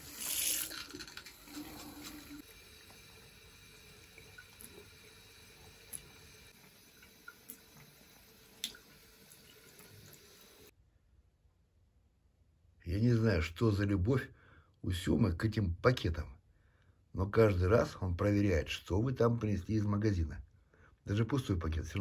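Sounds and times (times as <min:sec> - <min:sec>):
tap water splashing into sink: 0:00.0 - 0:10.7.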